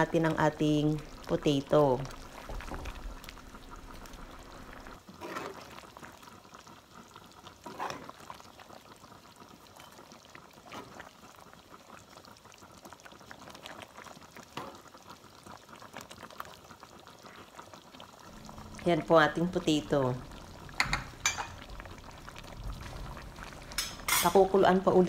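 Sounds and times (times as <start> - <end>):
curry simmering and bubbling: 0.0 - 25.0
spoon scraping pan: 5.2 - 5.6, 20.4 - 24.6.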